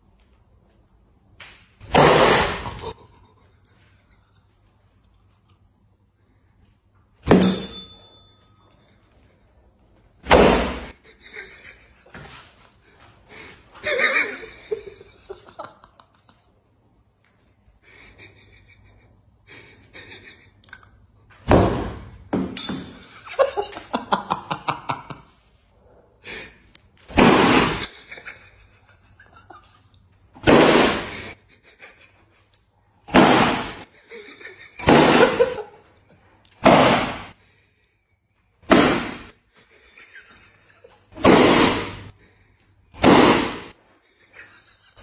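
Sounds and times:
foam pool noodles smacking: 1.8s - 2.8s, 10.2s - 10.9s, 27.1s - 27.9s, 30.4s - 31.1s, 33.1s - 33.8s, 34.8s - 35.4s, 36.6s - 37.3s, 38.6s - 39.3s, 41.2s - 42.0s, 43.0s - 43.7s
people laughing: 11.0s - 16.6s, 17.8s - 20.9s, 23.2s - 25.4s, 27.8s - 30.0s, 33.9s - 36.1s, 39.5s - 41.1s, 44.0s - 45.0s.

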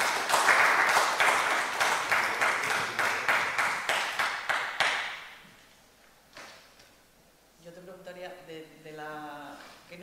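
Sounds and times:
audience applause: 0.0s - 5.2s.

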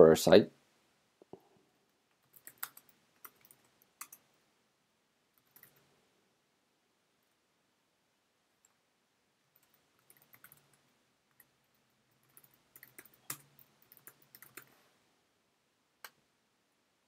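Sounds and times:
keyboard typing: 2.2s - 4.3s, 5.4s - 5.9s, 9.5s - 14.8s.

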